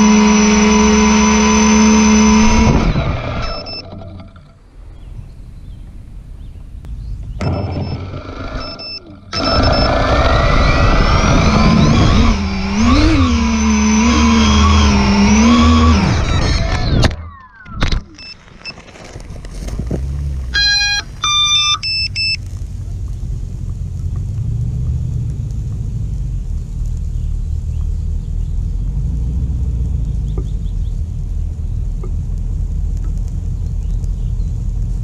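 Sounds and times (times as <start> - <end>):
electronic beeps at stepped pitches: 0.0 - 4.0, 7.4 - 13.6, 20.5 - 22.4
electric motors and propellers whining: 0.0 - 4.6, 7.4 - 22.4
low steady rumble: 0.0 - 35.0.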